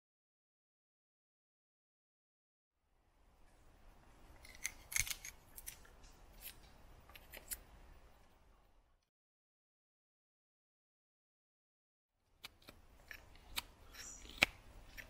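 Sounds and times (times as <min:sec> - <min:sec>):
faint background hiss: 0:02.8 - 0:09.1, 0:12.2 - 0:15.0
knife carving wooden stick: 0:04.4 - 0:07.6, 0:12.4 - 0:15.0.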